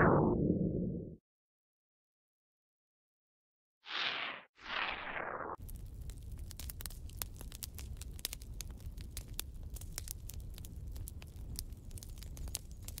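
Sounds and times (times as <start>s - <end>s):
irregular crackling: 3.9s - 13.0s.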